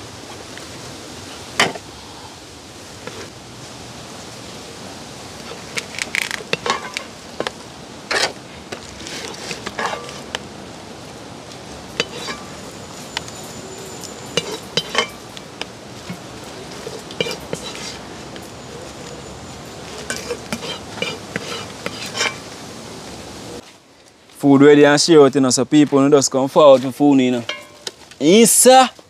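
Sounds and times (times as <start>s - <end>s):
steady background hiss: 0.0s - 29.0s
spoon scraping cooking pot: 8.1s - 10.4s, 12.0s - 18.1s, 19.8s - 22.5s.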